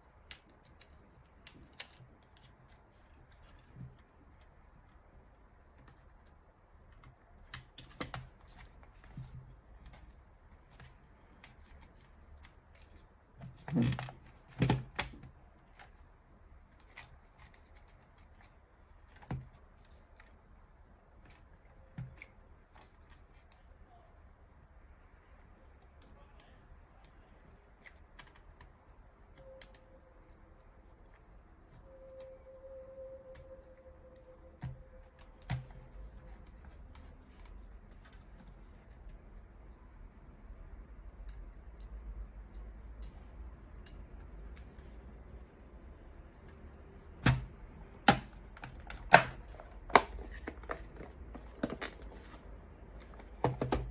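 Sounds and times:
light clicks of plastic handling: 34.2 - 39.7, 46.3 - 53.9.

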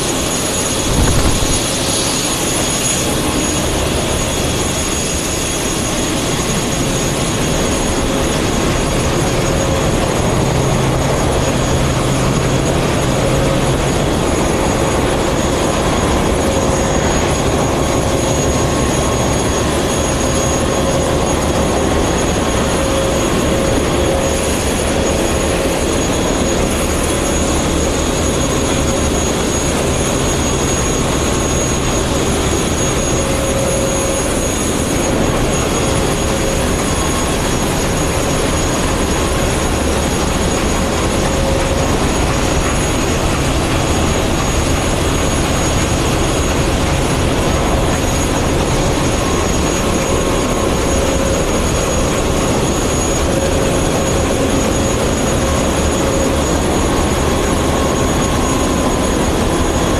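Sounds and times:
engine room machinery roar: 0.0 - 59.9
machinery whines: 0.0 - 59.9.

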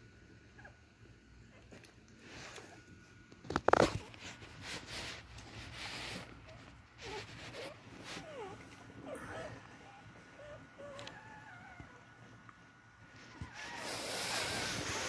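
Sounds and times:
soft rustling hisses: 3.8 - 8.8, 13.0 - 15.0.

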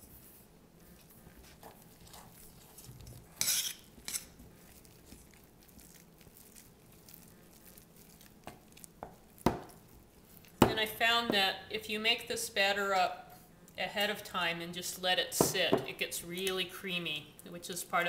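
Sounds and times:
spoon scraping batter in bowl: 0.9 - 10.9.

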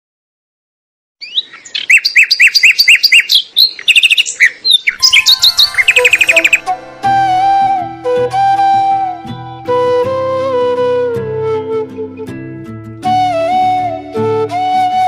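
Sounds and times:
birds chirping: 1.2 - 7.8
soft background music: 5.0 - 15.0.

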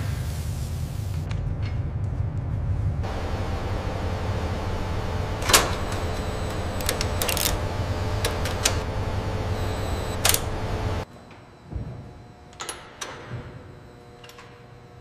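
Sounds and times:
low industrial hum: 0.1 - 15.0
faint steady tones: 3.0 - 11.0
sharp mechanical clicks: 5.4 - 8.9, 9.5 - 11.0.

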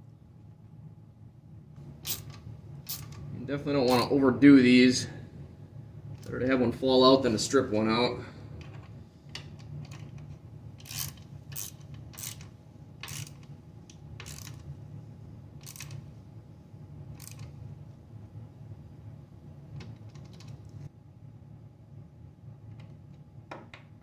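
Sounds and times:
ratcheting driver clicking: 10.8 - 13.5, 14.2 - 14.6, 15.6 - 16.0, 17.2 - 17.5.

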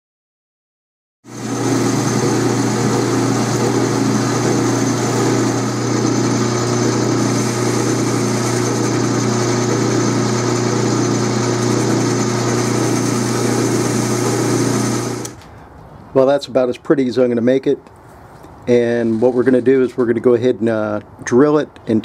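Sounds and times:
lathe machine hum: 1.3 - 15.4
metal cutting noise: 1.3 - 15.4.

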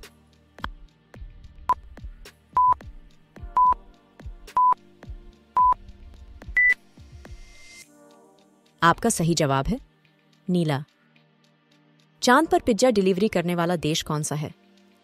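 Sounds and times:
quiet background music: 0.0 - 15.0
countdown timer beeps: 2.6 - 2.8, 3.5 - 3.8, 4.6 - 4.8, 5.6 - 5.8, 6.6 - 6.8.

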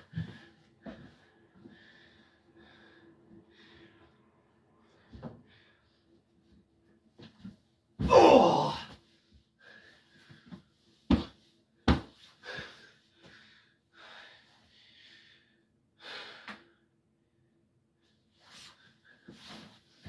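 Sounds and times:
man breathing: 0.0 - 4.2, 9.6 - 10.8, 12.3 - 17.0.

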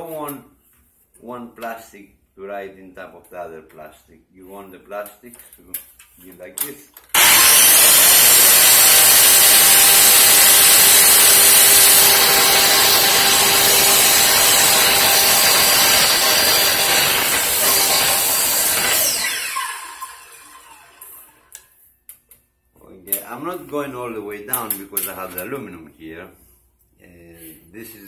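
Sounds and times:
circular saw cutting plastic: 7.1 - 21.6.

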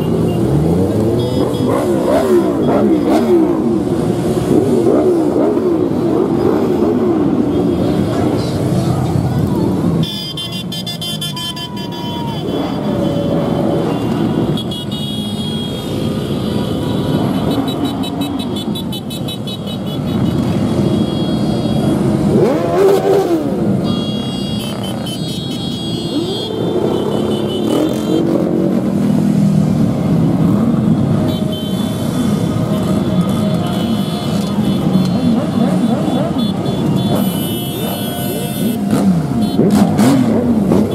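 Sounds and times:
motorcycle engine revving: 0.0 - 9.9, 21.6 - 25.2, 26.0 - 31.2, 31.9 - 40.9
motorcycles riding past: 0.0 - 10.0, 11.6 - 40.9.

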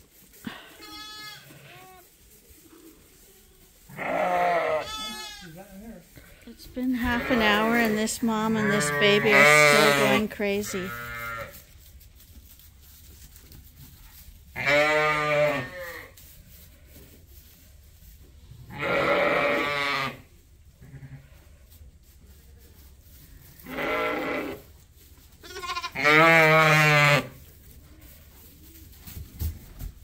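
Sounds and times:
sheep bleating: 0.5 - 2.0, 3.9 - 5.6, 7.0 - 11.5, 14.6 - 16.1, 18.7 - 20.2, 23.7 - 24.6, 25.4 - 27.3.

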